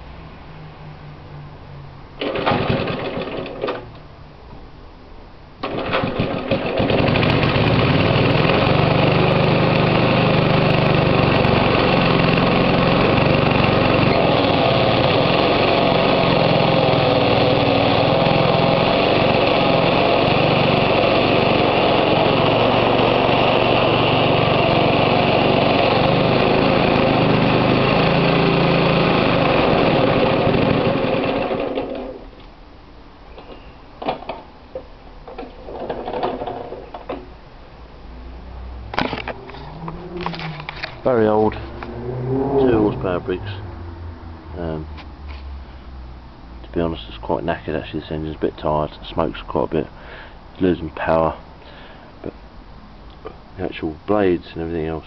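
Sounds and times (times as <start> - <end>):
lawn mower engine starting and running: 2.2 - 4.0, 5.6 - 32.5, 33.3 - 46.4.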